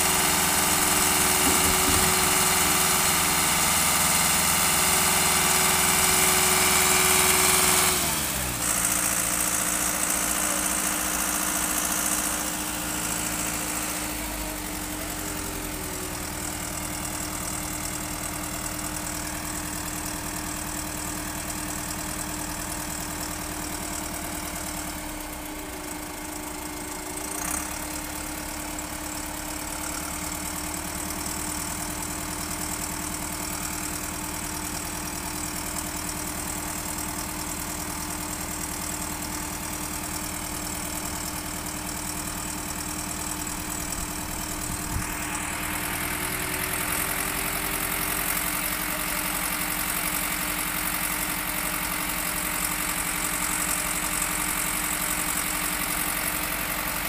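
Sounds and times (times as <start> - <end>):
diesel engines running steadily: 0.0 - 57.0
short knock: 1.4 - 2.6.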